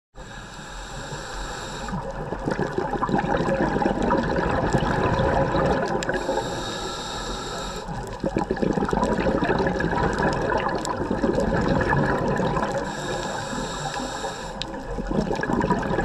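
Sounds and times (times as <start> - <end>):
underwater hiss: 0.2 - 2.2, 6.0 - 8.3, 12.7 - 14.9
diver exhaling bubbles underwater: 1.9 - 6.6, 7.9 - 14.0, 14.6 - 16.0.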